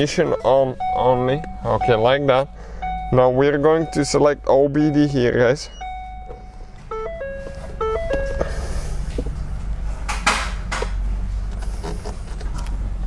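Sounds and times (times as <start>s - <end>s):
held electronic tone: 0.0s - 9.0s
electronic chime tune: 4.9s - 8.8s.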